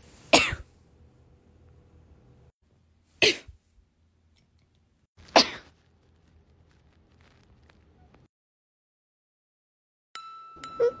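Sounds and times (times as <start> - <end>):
person sneezing: 3.2 - 3.6, 5.3 - 5.7.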